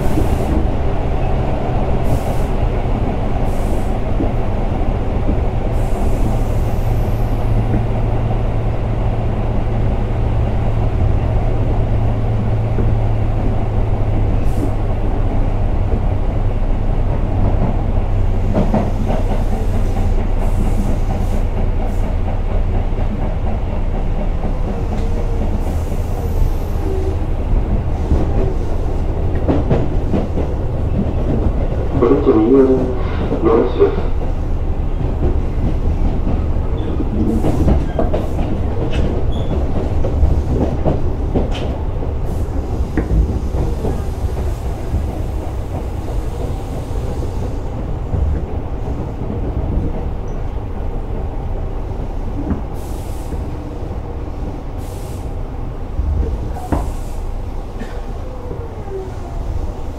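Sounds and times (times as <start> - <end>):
wheels clicking over rail joints: 34.1 - 51.5.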